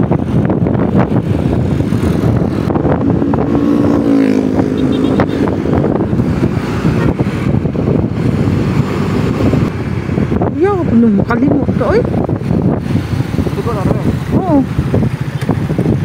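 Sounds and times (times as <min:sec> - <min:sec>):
road and traffic noise: 0:00.0 - 0:16.0
wind buffeting microphone: 0:00.0 - 0:16.0
pitched tone: 0:03.3 - 0:05.6.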